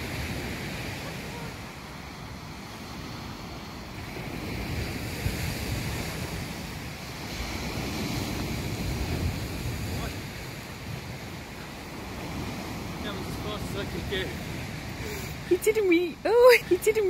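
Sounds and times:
wind rumbling on microphone: 0.0 - 16.7
small waves washing ashore: 0.0 - 17.0.

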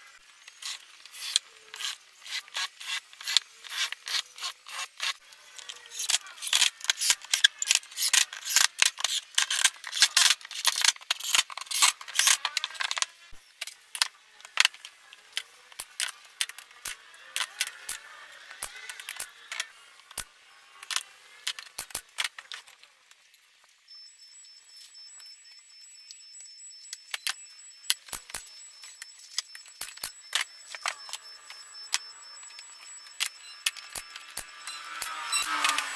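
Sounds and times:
clicks and knocks of handling tools: 0.5 - 23.2, 27.0 - 35.9
faint high-pitched tone: 23.8 - 35.9.

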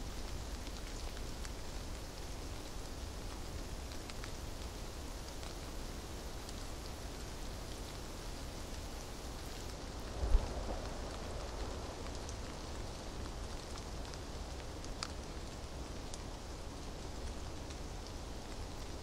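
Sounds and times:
steady hiss: 0.0 - 19.0
faint ticks: 3.3 - 5.6.

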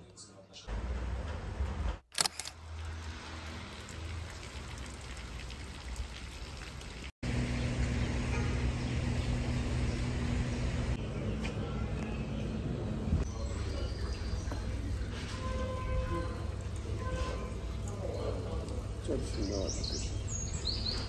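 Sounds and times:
sharp clicks: 2.1 - 2.6
low steady hum: 7.2 - 11.0.

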